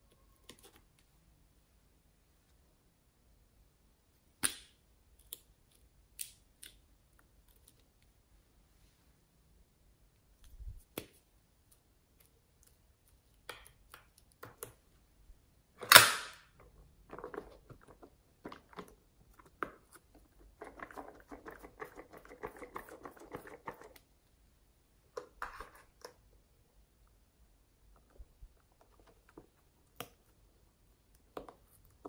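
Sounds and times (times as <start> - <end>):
sharp plastic snap: 15.8 - 16.5.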